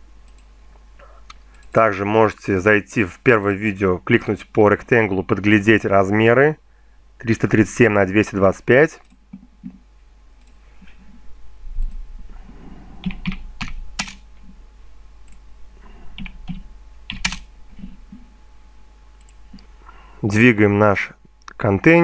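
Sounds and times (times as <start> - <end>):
sharp clicks: 0.2 - 0.5, 19.2 - 19.7
keystrokes on computer keyboard: 13.0 - 14.2, 16.2 - 18.2.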